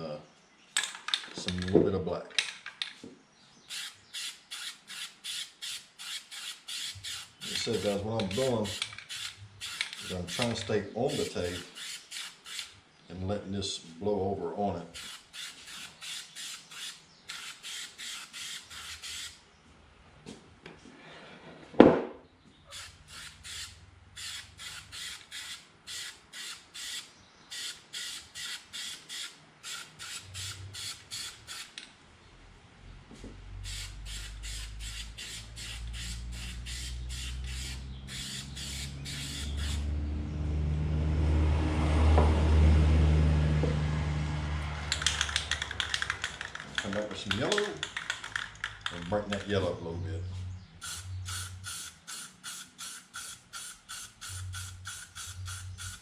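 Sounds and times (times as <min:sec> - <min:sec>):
spray can short bursts: 0:03.7 - 0:08.0, 0:08.6 - 0:12.7, 0:15.0 - 0:19.4, 0:22.7 - 0:31.7, 0:33.6 - 0:39.8, 0:50.8 - 0:56.0.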